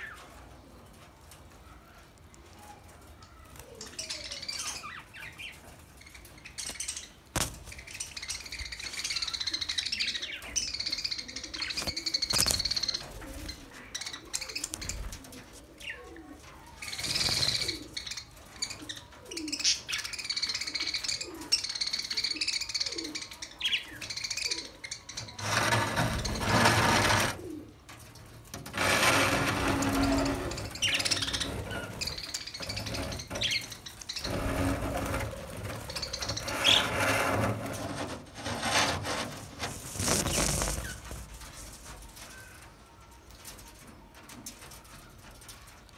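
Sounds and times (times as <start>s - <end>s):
budgerigars chirping and warbling: 29.8s - 38.0s.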